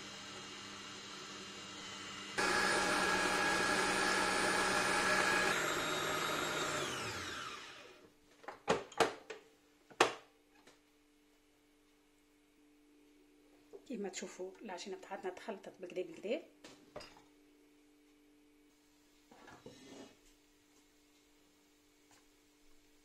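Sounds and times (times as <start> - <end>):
stand mixer motor whining: 0.0 - 8.0.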